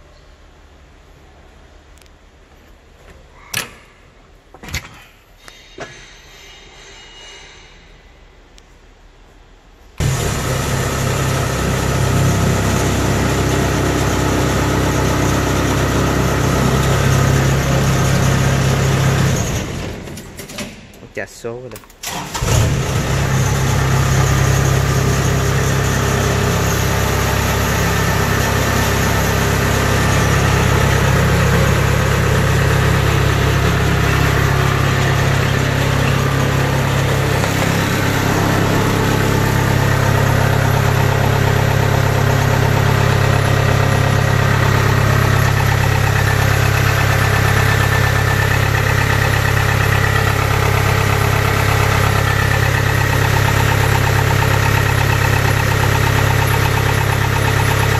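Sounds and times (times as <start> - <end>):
diesel engine running: 10.0 - 20.4, 22.1 - 57.9.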